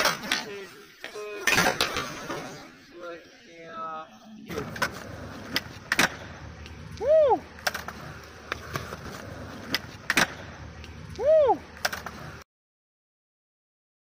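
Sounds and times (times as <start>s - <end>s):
skateboard clacks on concrete: 4.6s - 6.8s, 7.6s - 11.0s.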